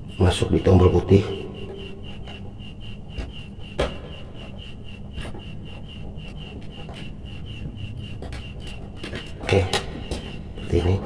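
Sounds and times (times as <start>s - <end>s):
high repeating chirp: 0.0s - 11.0s
wires rubbing and scraping: 0.0s - 11.0s.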